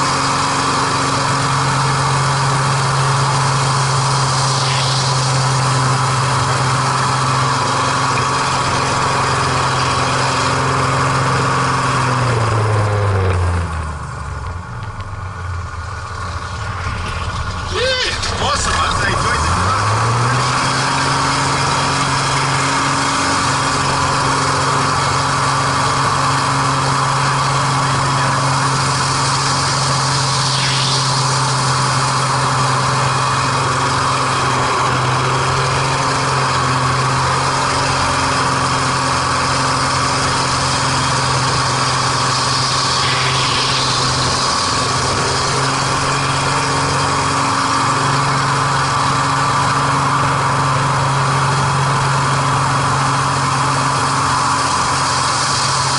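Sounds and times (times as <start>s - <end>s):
propeller plane engine drone: 0.0s - 55.9s
rushing air: 2.7s - 8.1s, 29.0s - 36.0s, 40.3s - 48.6s.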